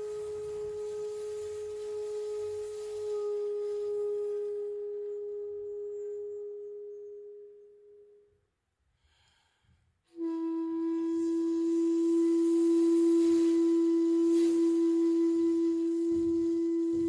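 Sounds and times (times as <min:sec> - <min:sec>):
bamboo flute note: 0:00.0 - 0:08.3, 0:10.1 - 0:17.0
faint breath: 0:08.9 - 0:10.0.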